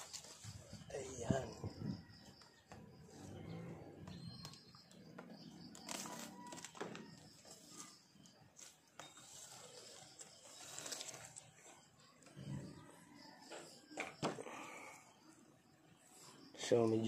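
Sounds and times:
leafy branches rustling: 0:07.5 - 0:11.6.

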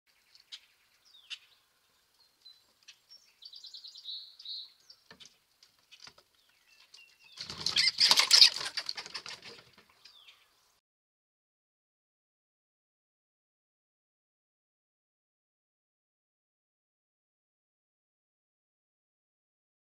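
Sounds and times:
birds chirping: 0:00.1 - 0:10.8
bird trill: 0:06.5 - 0:08.7
bird wingbeats: 0:07.4 - 0:09.9.

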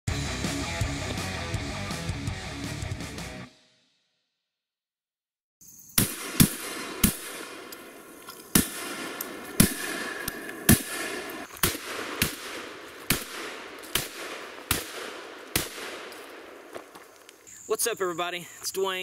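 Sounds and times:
shotgun shots: 0:06.0 - 0:16.8.

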